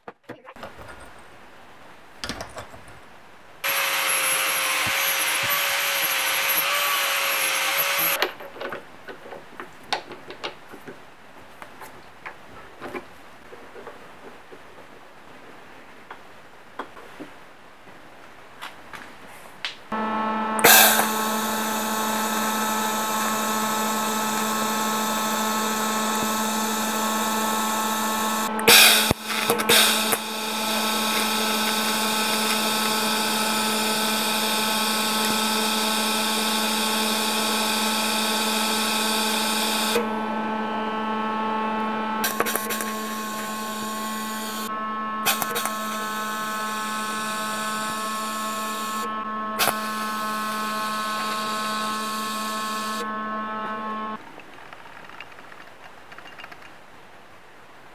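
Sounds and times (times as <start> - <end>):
welding arc buzzing and hissing: 3.6 - 8.2, 19.9 - 54.2.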